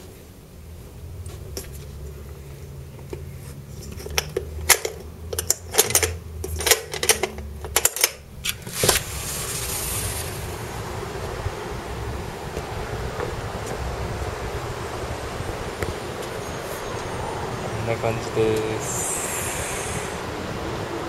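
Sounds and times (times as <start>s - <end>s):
metal door latch clicking and rattling: 4.1s - 8.2s
wind noise on microphone: 8.4s - 21.0s.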